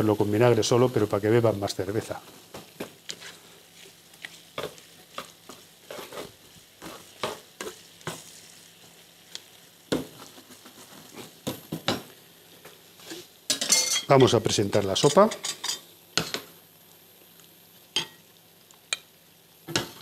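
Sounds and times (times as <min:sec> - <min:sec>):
faint sizzle: 0:00.0 - 0:20.0
tongs clicking in frying pan: 0:17.9 - 0:19.1.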